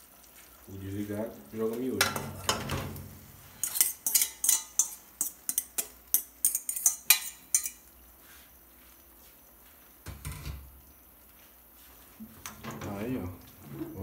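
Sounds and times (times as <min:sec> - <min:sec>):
fork clinking against metal pot: 0:03.6 - 0:07.9.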